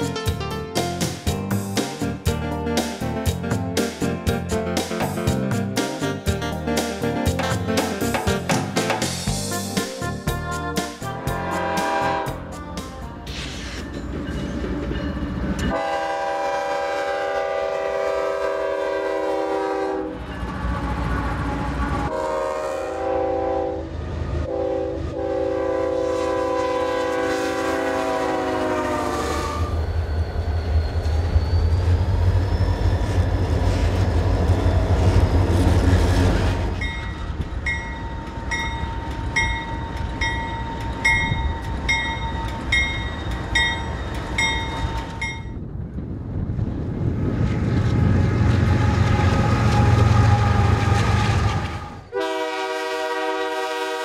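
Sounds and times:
locomotive rumbling past: 0.0s - 54.0s
train air horn: 11.0s - 12.6s, 15.7s - 29.9s, 48.3s - 54.0s
bell ringing: 36.8s - 45.6s.

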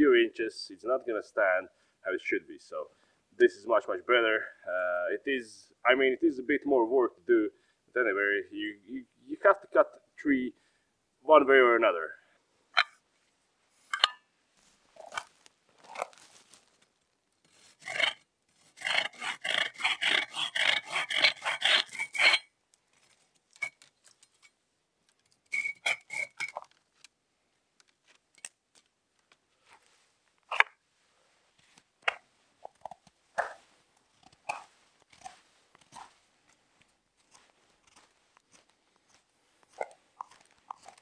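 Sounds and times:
knife shaving wood: 15.0s - 24.4s, 25.1s - 27.1s, 32.8s - 41.0s
pruning saw cutting branch: 17.5s - 22.4s.

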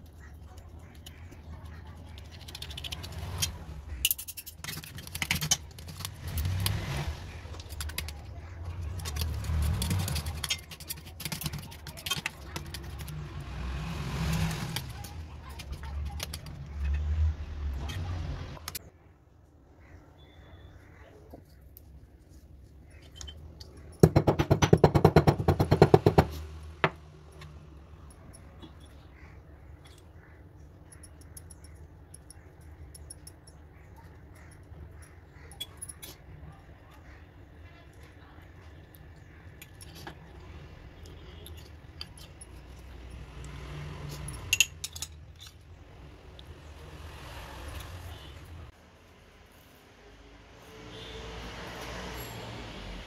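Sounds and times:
stone pestle pounding in mortar: 24.0s - 27.0s.

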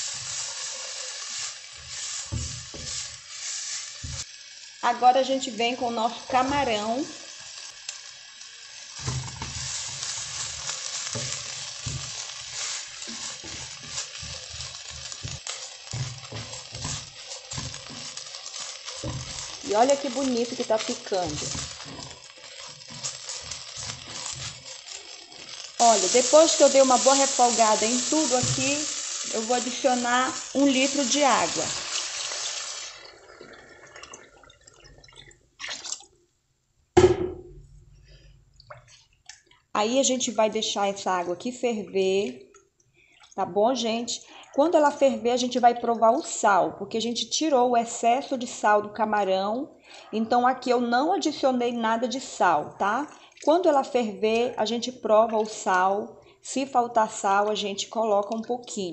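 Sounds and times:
wooden spoon scraping a pot: 0.0s - 4.2s, 9.0s - 32.5s
shrimp and vegetables sizzling in oil: 0.0s - 33.3s
sudden knock: 37.0s - 37.7s
faint drips: 38.0s - 39.7s, 41.8s - 43.4s, 53.1s - 53.5s.

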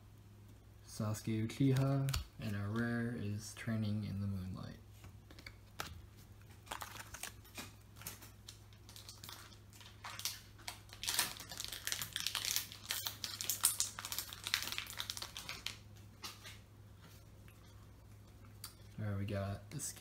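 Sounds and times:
foil wrapper crinkling: 5.4s - 16.6s.

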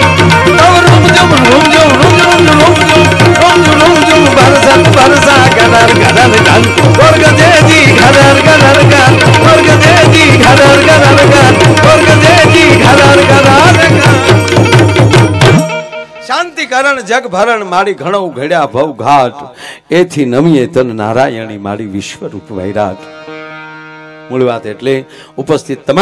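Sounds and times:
hand drum beat: 0.0s - 15.8s
harmonium chords: 0.0s - 19.4s, 21.0s - 26.0s.

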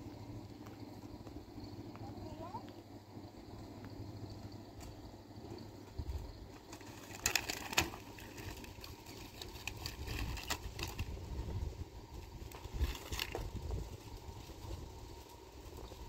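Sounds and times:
low steady rumble: 0.0s - 16.0s
plastic-wrapped packs clinking: 6.7s - 11.1s.

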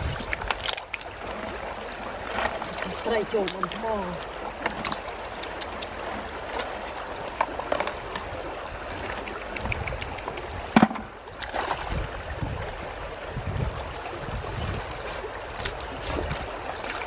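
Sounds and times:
splashes and clicks in water: 0.0s - 12.0s, 15.6s - 17.0s
stream running over stones: 0.0s - 17.0s.

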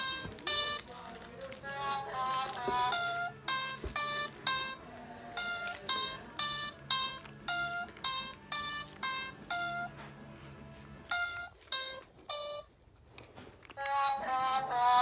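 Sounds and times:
electronic toy beeping: 0.0s - 1.0s, 1.8s - 10.0s, 11.1s - 12.7s.

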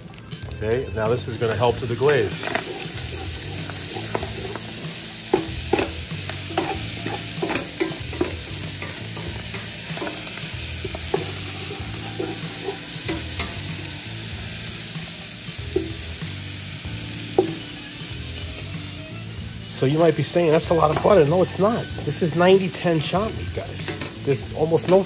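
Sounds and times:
meat and vegetables sizzling in pan: 0.0s - 25.0s
wooden spoon knocking against pan: 2.5s - 13.7s, 17.4s - 17.7s.

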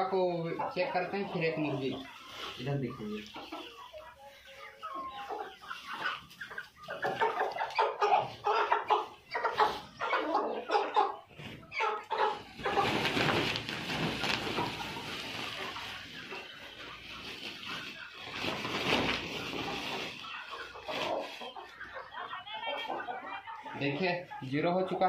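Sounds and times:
chickens squawking and clucking: 0.0s - 25.0s
wings flapping and rustling: 12.3s - 21.8s.

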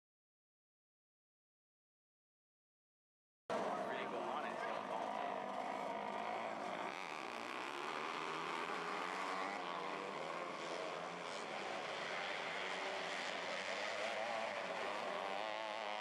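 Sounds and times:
micro sprint car engines revving: 3.5s - 16.0s.

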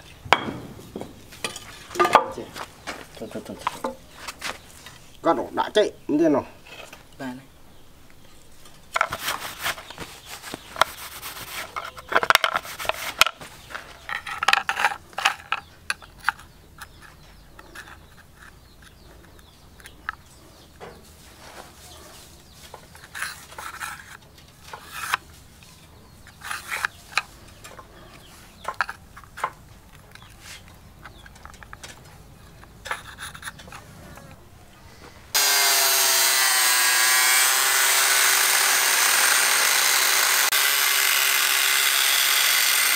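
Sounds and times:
knife rubbing and scraping: 9.0s - 15.0s, 21.3s - 27.4s
angle grinder whining: 35.3s - 42.9s.

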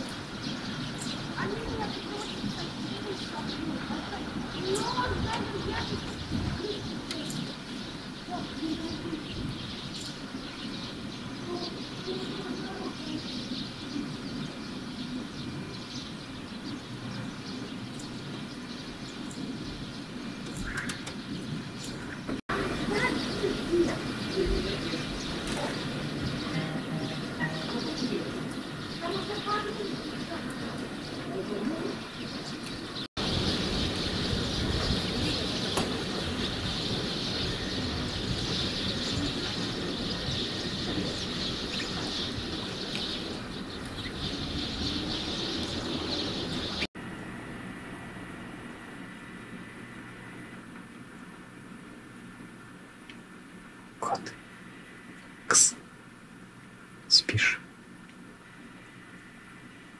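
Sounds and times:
small birds chirping: 0.0s - 46.9s, 48.7s - 59.9s
low outdoor rumble: 0.0s - 59.9s
even hiss: 55.4s - 55.9s, 57.1s - 57.7s.

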